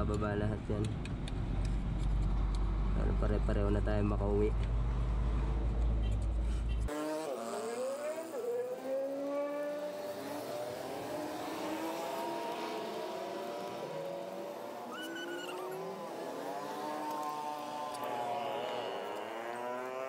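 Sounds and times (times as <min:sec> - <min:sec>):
vehicle engines revving and passing: 0:00.0 - 0:20.0.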